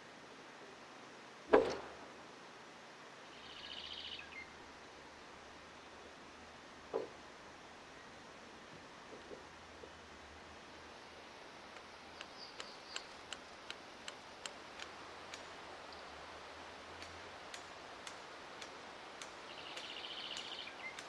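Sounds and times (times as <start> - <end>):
bird chirping: 3.3 - 4.5, 12.0 - 13.4, 19.2 - 21.0
faint sharp ticks: 11.7 - 16.1, 16.9 - 21.0.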